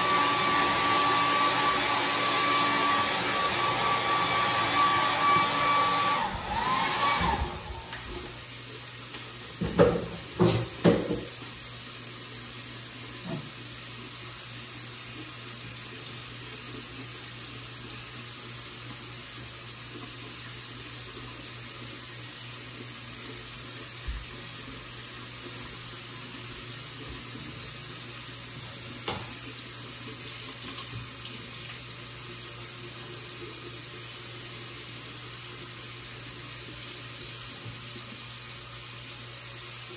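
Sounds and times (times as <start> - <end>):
appliance motor whine: 0.0 - 8.4
tap running into sink: 9.1 - 11.5, 13.2 - 13.6, 28.6 - 29.6.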